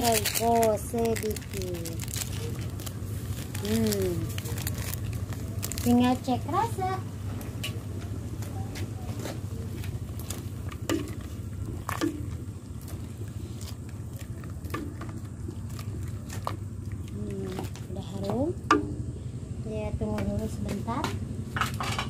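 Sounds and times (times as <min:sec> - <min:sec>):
liquid sloshing: 0:00.0 - 0:06.4, 0:09.1 - 0:19.2
steady low hum: 0:00.0 - 0:22.0
ladle stirring soup in a pot: 0:09.1 - 0:17.9.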